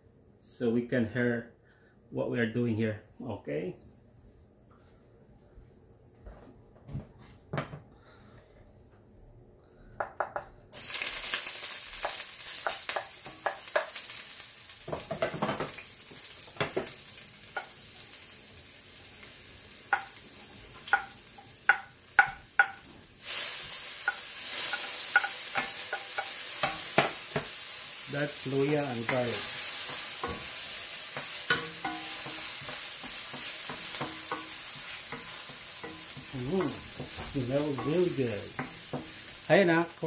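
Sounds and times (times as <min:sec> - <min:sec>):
ginger and garlic sizzling in oil: 0:10.7 - 0:40.0.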